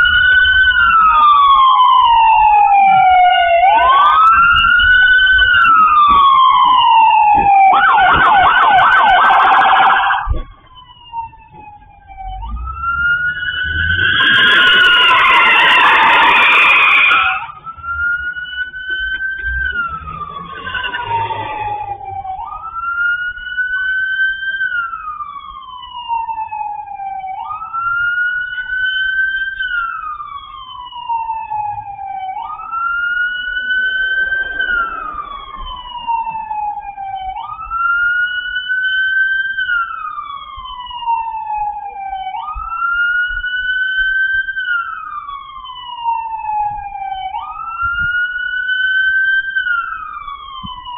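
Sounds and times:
police siren wailing: 0:00.0 - 0:50.9
brief rushing noise: 0:33.3 - 0:36.6.

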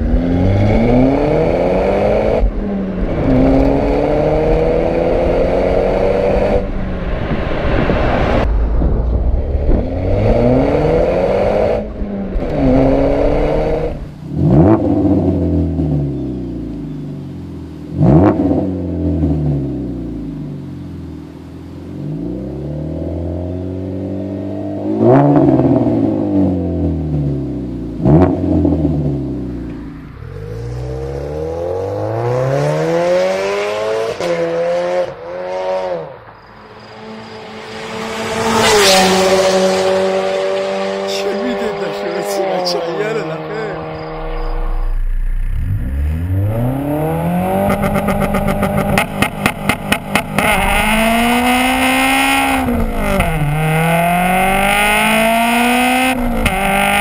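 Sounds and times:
car exhaust revving: 0:00.0 - 0:16.2, 0:37.2 - 0:57.0
exhaust crack: 0:06.5 - 0:15.4, 0:38.7 - 0:57.0.

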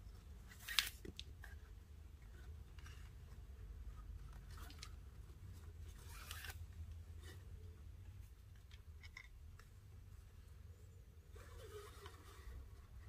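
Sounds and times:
low steady hum: 0:00.0 - 0:13.0
cord rubbing and sliding: 0:00.2 - 0:07.6, 0:11.2 - 0:13.0.

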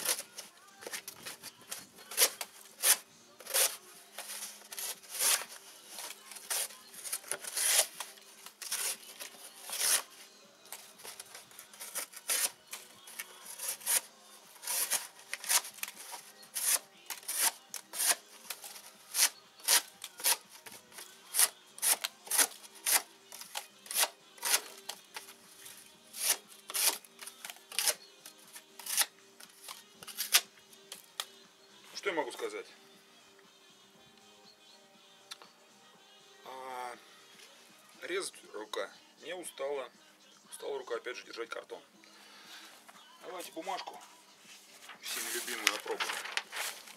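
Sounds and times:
knife cutting cardboard: 0:02.1 - 0:10.1, 0:13.5 - 0:24.8, 0:26.1 - 0:27.1, 0:27.7 - 0:28.0.

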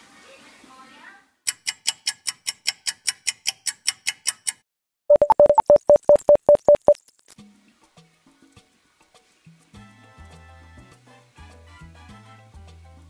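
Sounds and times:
short mid-pitched beeps: 0:05.1 - 0:07.0.

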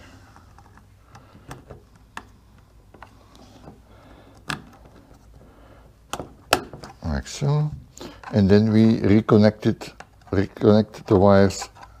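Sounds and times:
plastic and metal parts clicking: 0:08.1 - 0:12.0.

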